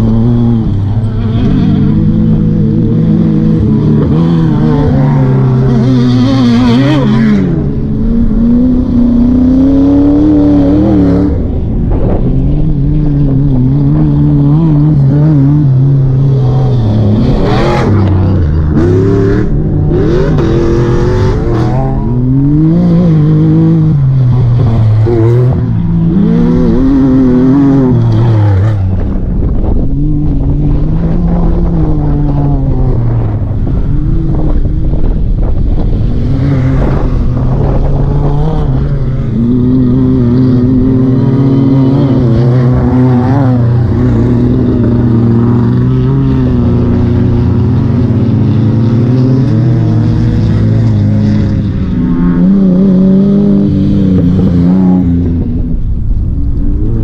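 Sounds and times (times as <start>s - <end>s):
off-road vehicle engines revving: 0.0s - 57.0s.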